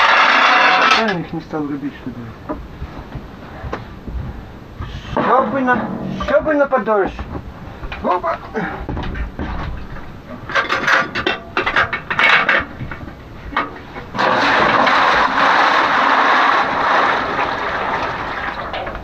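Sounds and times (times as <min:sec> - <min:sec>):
metal lid clanking: 0:05.2 - 0:06.9, 0:10.5 - 0:12.7
water pouring into metal tub: 0:14.2 - 0:19.0.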